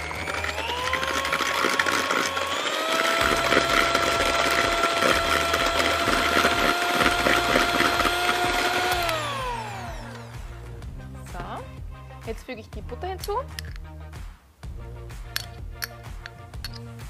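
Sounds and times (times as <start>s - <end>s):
electric hand mixer whining: 0.0s - 10.6s.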